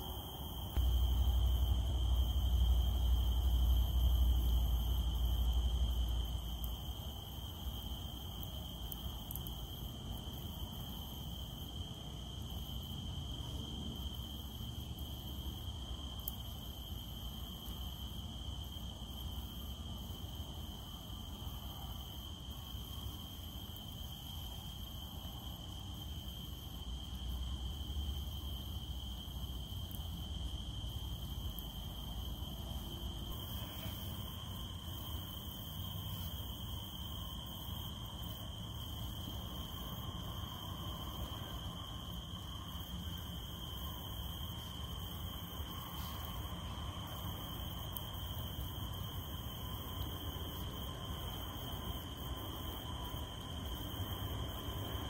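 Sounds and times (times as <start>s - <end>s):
low background rumble: 0.0s - 9.2s
cicadas droning: 0.0s - 55.0s.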